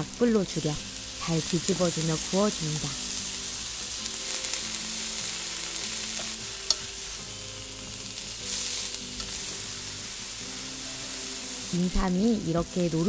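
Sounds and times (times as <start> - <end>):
sizzling in oil in a frying pan: 0.0 - 13.0.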